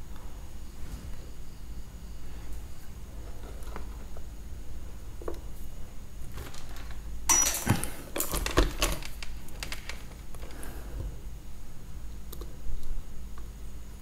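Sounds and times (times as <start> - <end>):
small metal tools clicking and clattering: 6.4 - 10.5.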